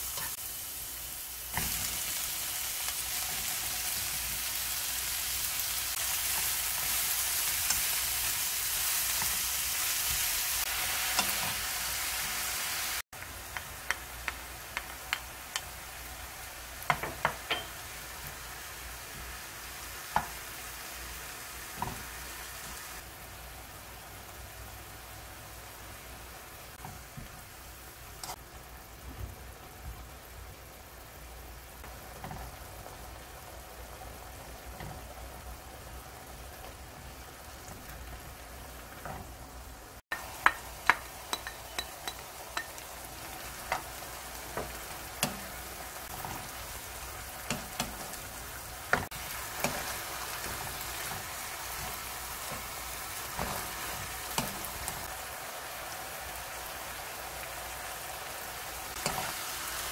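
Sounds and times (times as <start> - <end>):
vegetables sizzling in a wok: 0.0 - 59.9
spatula clacking against pan: 40.2 - 42.8.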